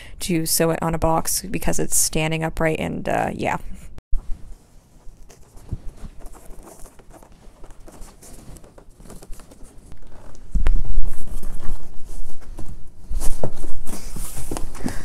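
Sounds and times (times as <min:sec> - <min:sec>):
fabric rubbing and bumping: 0:04.2 - 0:15.0
fabric rustling: 0:04.2 - 0:15.0.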